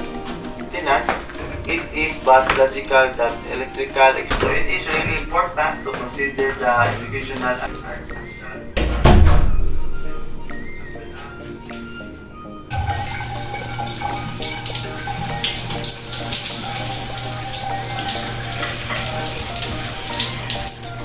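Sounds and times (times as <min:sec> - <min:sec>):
background music: 0:00.0 - 0:21.0
water running and splashing: 0:12.7 - 0:21.0.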